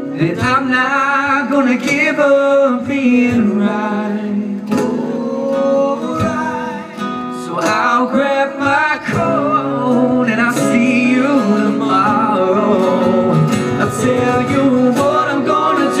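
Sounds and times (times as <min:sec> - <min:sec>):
man singing: 0:00.0 - 0:16.0
strummed acoustic guitar: 0:00.0 - 0:16.0
band accompaniment: 0:04.6 - 0:16.0.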